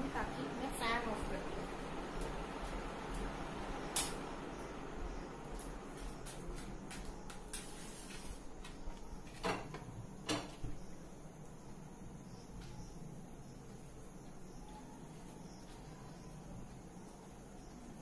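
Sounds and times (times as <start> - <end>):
gas stove igniter clicks: 3.9 - 4.2.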